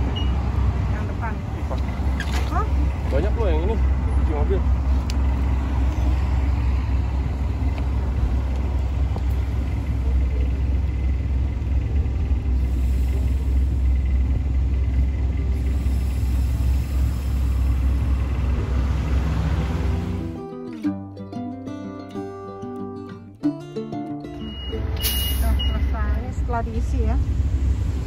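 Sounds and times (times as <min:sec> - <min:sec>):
air compressor rumbling: 0:08.0 - 0:18.9
air hissing into tyre: 0:12.6 - 0:14.1, 0:15.5 - 0:18.4, 0:25.0 - 0:25.6.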